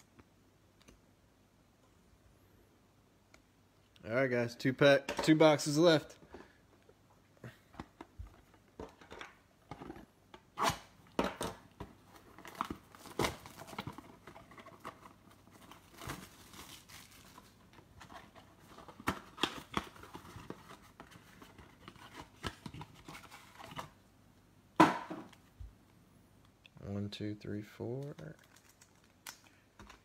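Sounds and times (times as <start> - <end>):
wrapping crinkling and tearing: 12.0 - 24.0, 27.8 - 30.0.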